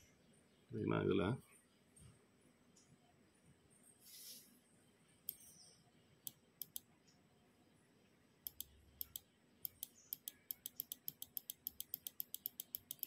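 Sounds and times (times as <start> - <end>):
mouse button clicking: 6.6 - 6.8, 8.5 - 13.0.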